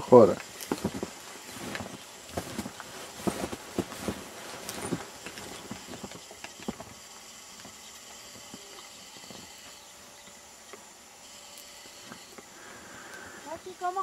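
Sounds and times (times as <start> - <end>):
faint steady hiss: 0.0 - 14.0
boots crunching in deep snow: 0.5 - 6.9.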